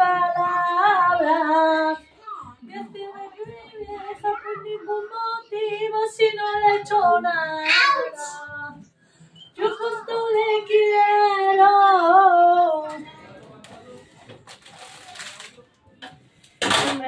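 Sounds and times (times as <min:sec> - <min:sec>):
woman singing unaccompanied: 0:00.0 - 0:08.9, 0:09.6 - 0:13.1.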